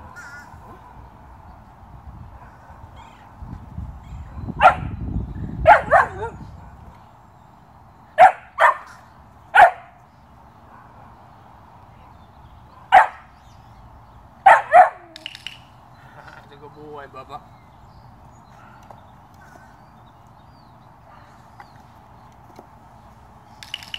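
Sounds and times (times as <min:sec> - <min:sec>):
puppy barking high-pitched: 0:04.6 - 0:05.0, 0:05.6 - 0:06.4, 0:08.2 - 0:09.0, 0:09.6 - 0:10.0, 0:12.8 - 0:13.3, 0:14.4 - 0:15.3.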